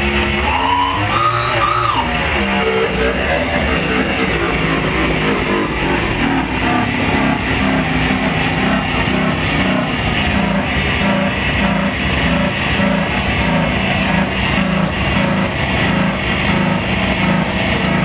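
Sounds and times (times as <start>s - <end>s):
short pitched synth tones: 0.0s - 9.8s
dense electronic noise wall: 0.0s - 18.0s
low drone: 0.0s - 18.0s.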